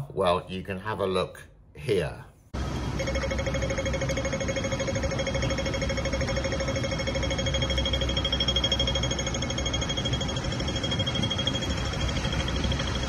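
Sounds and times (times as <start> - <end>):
crossing signal beeping rapidly: 2.9 - 13.0.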